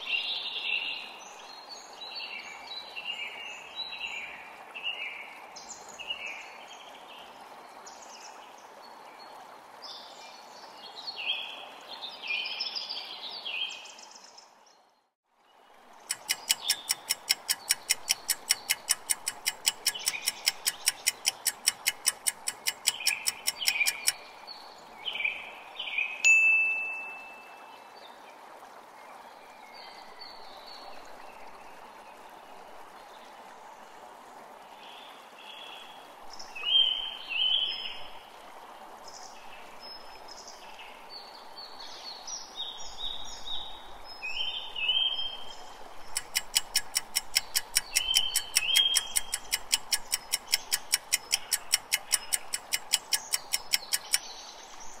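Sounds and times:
birds chirping: 16.0s - 27.5s, 46.0s - 55.0s
fast countdown timer ticking: 16.1s - 24.2s, 46.2s - 54.2s
bright chime: 26.3s - 27.5s.

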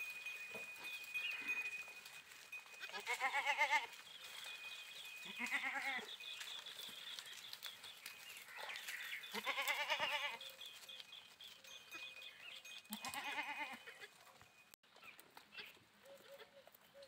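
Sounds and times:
goats bleating: 1.3s - 4.0s, 5.2s - 6.2s, 8.4s - 10.5s, 12.9s - 14.2s.

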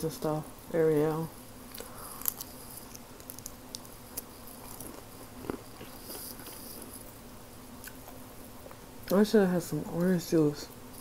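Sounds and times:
chewing crispy bacon: 1.6s - 9.2s.

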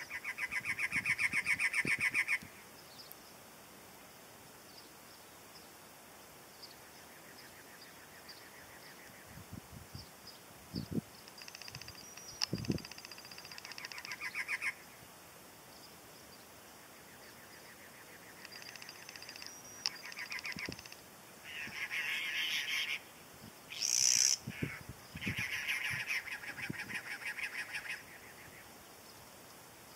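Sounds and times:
wrens singing harsh chugging notes: 18.4s - 21.0s
loud rasping bird call: 18.4s - 23.1s.

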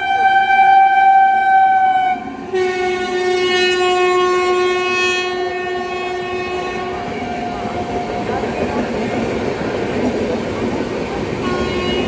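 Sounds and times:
locomotive horn: 0.0s - 8.2s, 11.4s - 12.0s
train coaches rumbling and clattering: 0.0s - 12.0s.

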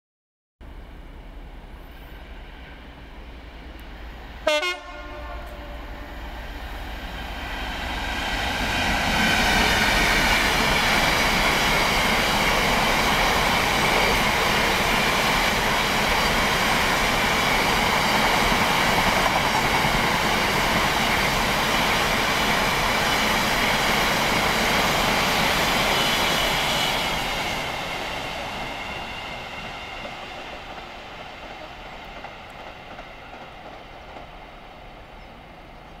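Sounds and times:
diesel locomotive engine: 0.6s - 36.0s.

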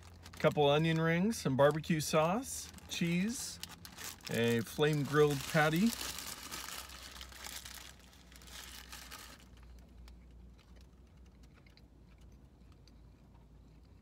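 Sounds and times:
paper wrapper crinkling: 0.0s - 0.6s, 2.6s - 11.4s
chewing clicks: 10.2s - 14.0s.

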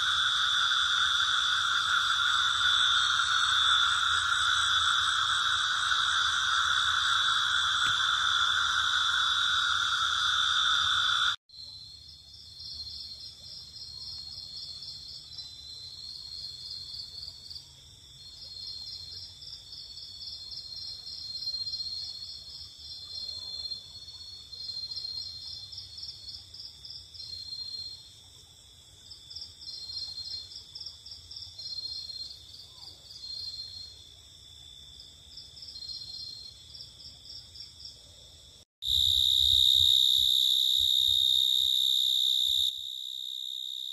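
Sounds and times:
crickets trilling: 0.0s - 13.0s, 38.8s - 43.9s
rapid insect chirps: 0.0s - 16.7s, 38.8s - 43.9s.

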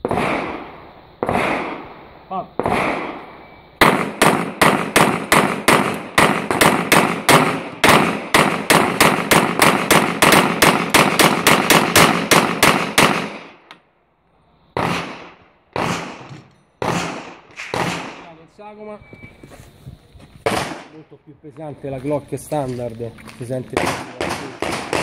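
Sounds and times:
pistol shots: 0.0s - 2.0s, 2.6s - 13.7s, 14.8s - 18.4s, 20.4s - 21.0s, 23.7s - 25.0s.

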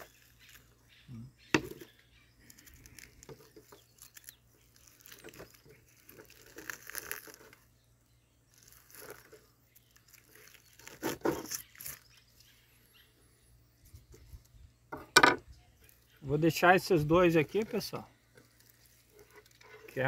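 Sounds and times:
meat tearing by hand: 2.5s - 7.7s, 8.5s - 12.2s.

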